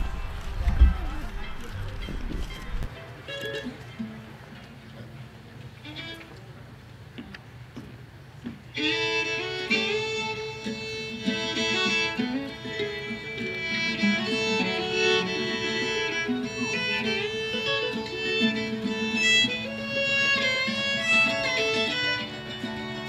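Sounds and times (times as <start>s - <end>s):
fiddle: 0.0s - 23.0s
guitar and plucked strings: 8.4s - 23.0s.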